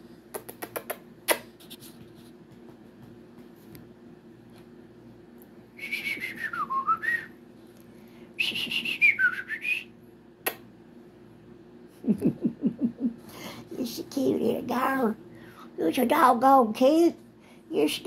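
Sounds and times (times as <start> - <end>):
person whistling: 5.8 - 7.3, 8.4 - 9.9.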